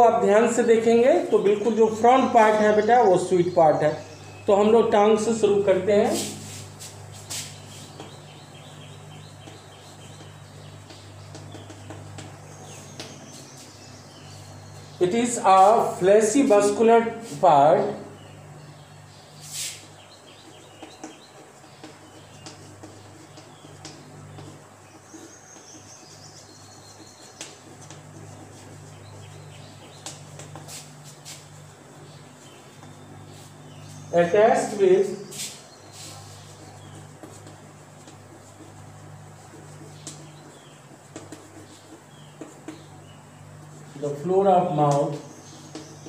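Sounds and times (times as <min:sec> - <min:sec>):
steady low hum: 0:00.0 - 0:46.0
chalk tapping on blackboard: 0:06.0 - 0:14.4, 0:19.4 - 0:34.0, 0:34.6 - 0:44.0, 0:44.8 - 0:46.0.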